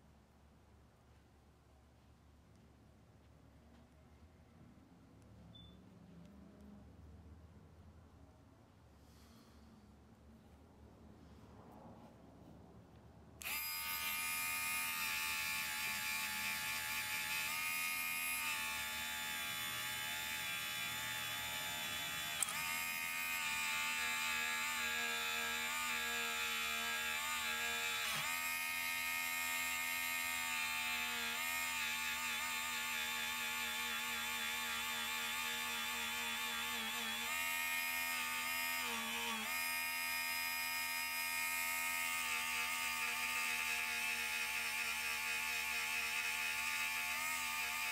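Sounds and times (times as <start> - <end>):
rotary tool whining: 13.4 - 47.9.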